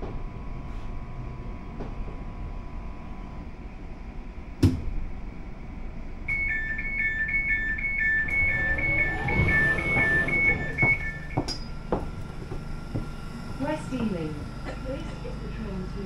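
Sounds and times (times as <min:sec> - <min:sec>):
two-tone door warning beeps: 0:06.3 - 0:11.7.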